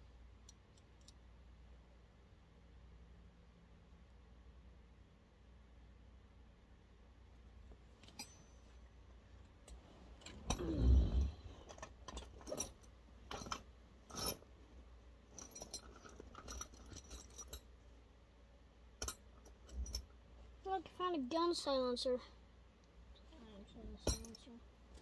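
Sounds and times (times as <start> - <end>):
small metal parts clinking: 8.0 - 8.6, 11.6 - 14.4, 15.3 - 17.7.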